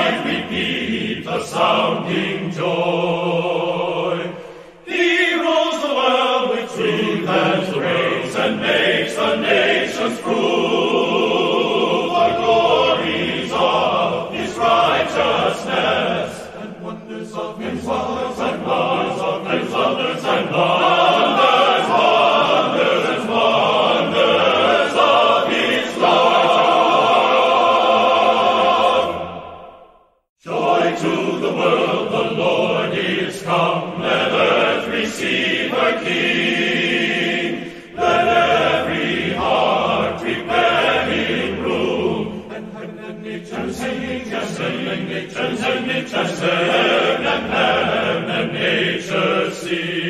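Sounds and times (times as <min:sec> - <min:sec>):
choir singing: 0:00.0 - 0:50.0.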